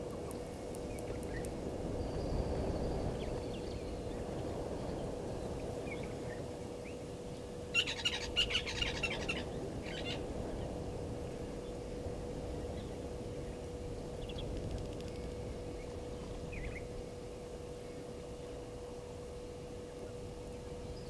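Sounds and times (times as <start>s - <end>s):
steady low hum: 0.0s - 21.0s
lapwing metallic tink calls: 7.7s - 10.2s.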